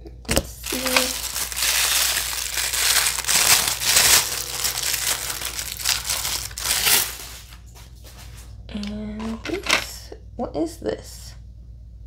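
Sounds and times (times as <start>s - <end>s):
plastic bag crinkling: 0.5s - 8.4s.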